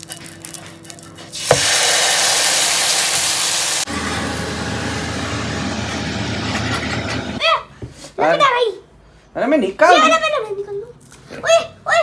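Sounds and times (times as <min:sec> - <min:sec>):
flatbread sizzling on griddle: 0:01.3 - 0:03.9.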